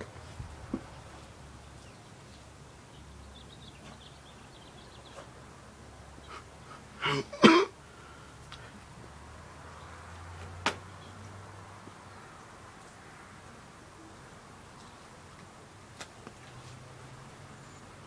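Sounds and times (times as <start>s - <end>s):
person coughing: 7.0s - 7.8s.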